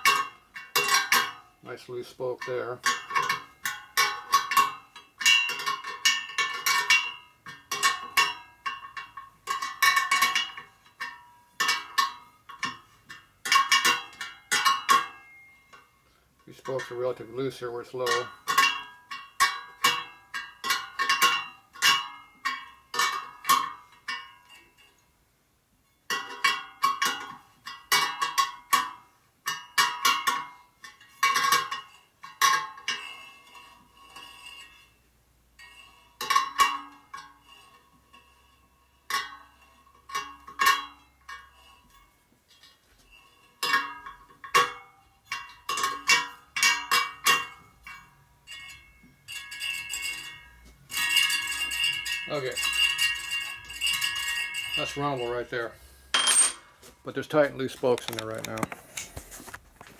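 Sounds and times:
wrench striking ringing wire spokes: 0:56.2 - 0:56.7.

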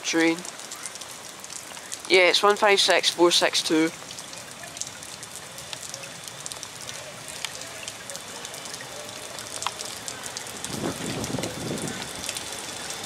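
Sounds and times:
rain pattering: 0:00.0 - 0:13.0
drops ticking: 0:03.7 - 0:13.0.

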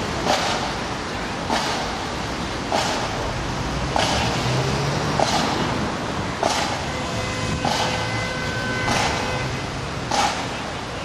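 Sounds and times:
marching drum beat: 0:06.4 - 0:07.0, 0:07.6 - 0:09.4.

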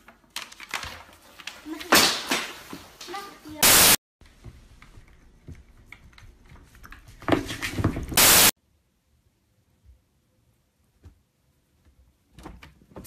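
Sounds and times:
static hiss burst: 0:03.6 - 0:04.0, 0:08.2 - 0:08.6.

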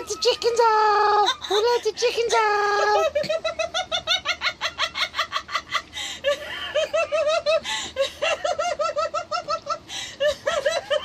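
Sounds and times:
person laughing hard: 0:02.7 - 0:11.0.

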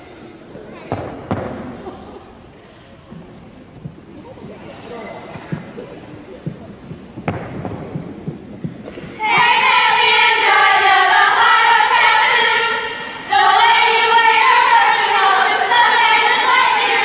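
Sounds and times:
soft thumps: 0:05.3 - 0:09.8
women singing in unison: 0:09.2 - 0:17.0.

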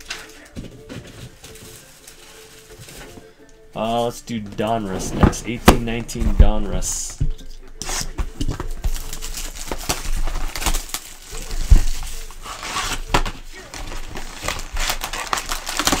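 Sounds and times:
foil packs rustling: 0:00.0 - 0:06.9, 0:07.9 - 0:16.0
cardboard box torn open: 0:08.9 - 0:16.0.

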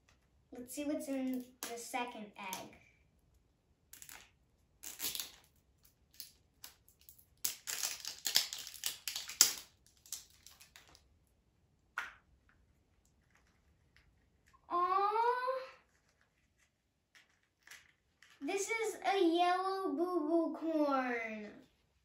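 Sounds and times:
plastic crinkling and clicking: 0:05.0 - 0:11.1.

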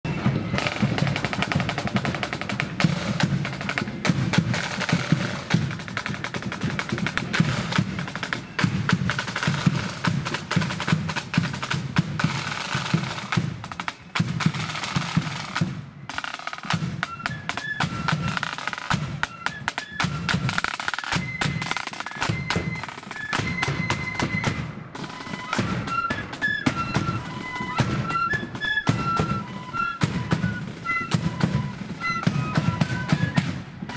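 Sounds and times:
marching drums: 0:00.0 - 0:33.9
high flute notes: 0:17.0 - 0:33.9.

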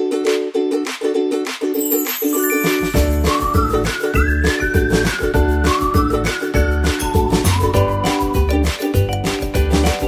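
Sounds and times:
high chiming shimmer: 0:01.8 - 0:03.3.

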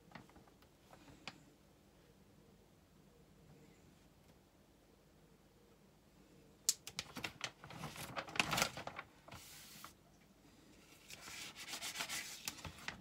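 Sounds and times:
plastic film crinkling: 0:06.7 - 0:10.0, 0:11.0 - 0:13.0
plastic film rustling: 0:06.8 - 0:10.0, 0:11.0 - 0:13.0.

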